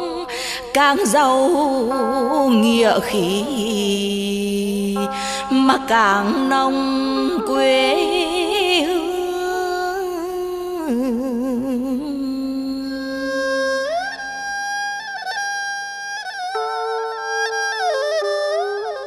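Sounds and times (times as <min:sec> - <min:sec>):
folk-style instrumental melody: 0:13.8 - 0:19.0.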